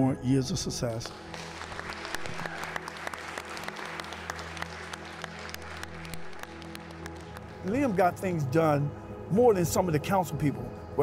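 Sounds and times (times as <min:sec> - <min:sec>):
crowd applauding: 0:01.0 - 0:08.2.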